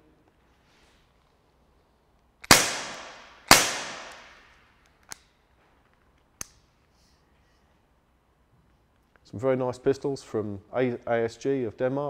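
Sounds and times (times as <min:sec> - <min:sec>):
gunshot cracks echoing: 0:02.5 - 0:04.5.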